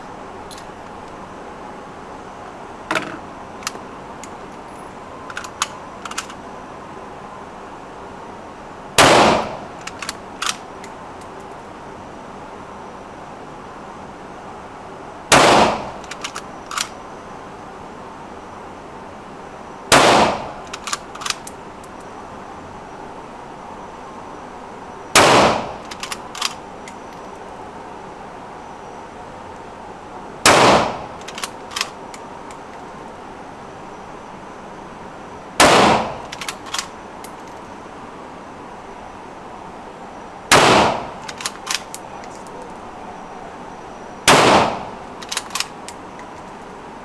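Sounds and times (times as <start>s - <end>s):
metallic clicks: 3.6s - 6.4s, 9.8s - 11.4s, 20.7s - 21.6s, 25.8s - 27.4s, 31.2s - 33.1s, 36.2s - 37.8s, 41.2s - 42.5s, 45.2s - 46.6s
rifle shots indoors: 9.0s - 9.5s, 25.2s - 25.7s, 30.5s - 31.0s, 35.6s - 36.2s, 40.5s - 41.0s, 44.3s - 44.8s.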